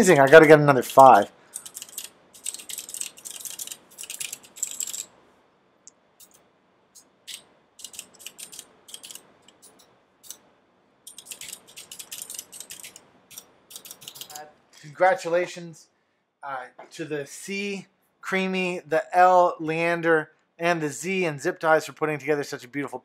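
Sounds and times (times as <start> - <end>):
mechanical keyboard key clacks: 0.9 - 5.1, 7.3 - 10.4, 11.1 - 14.4.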